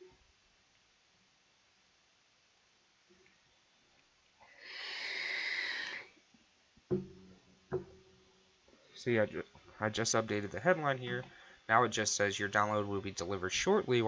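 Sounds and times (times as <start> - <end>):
short knocks: 6.9 - 8.1.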